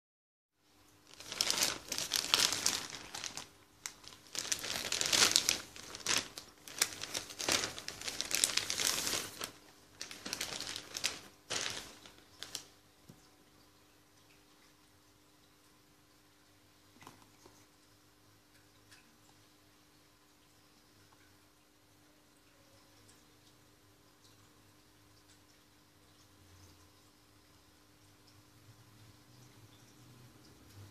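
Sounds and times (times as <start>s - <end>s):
plastic bag crinkling: 1.1s - 12.8s.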